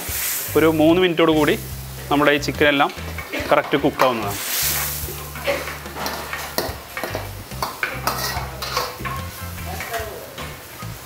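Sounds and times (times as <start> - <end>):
curry sizzling: 0.0 - 11.0
metal ladle scraping iron pan: 1.4 - 9.9.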